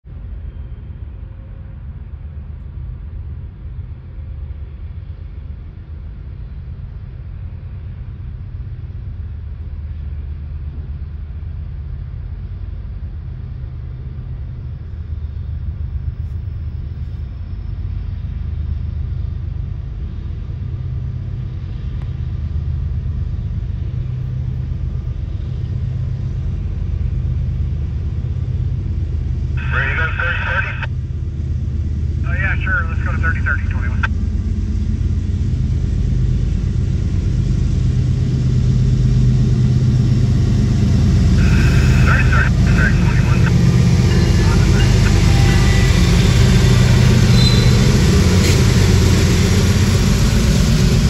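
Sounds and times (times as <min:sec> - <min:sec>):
diesel locomotives rumbling: 0:16.7 - 0:51.0.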